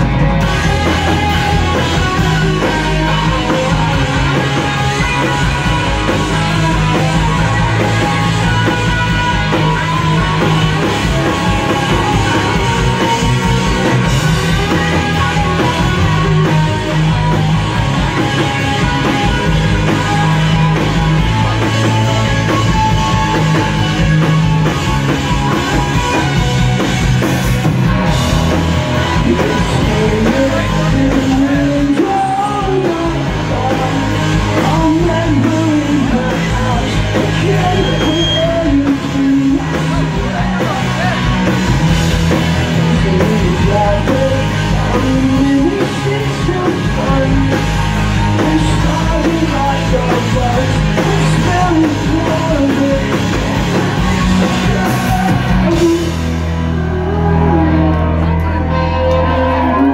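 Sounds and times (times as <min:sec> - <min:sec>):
rock band playing: 0:00.0 - 0:59.9
person singing: 0:28.9 - 0:41.6, 0:42.4 - 0:59.9.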